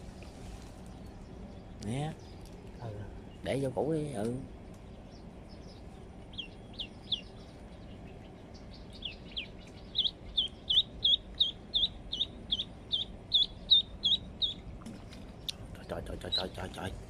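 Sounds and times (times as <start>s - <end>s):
duckling peeping: 4.9s - 17.0s.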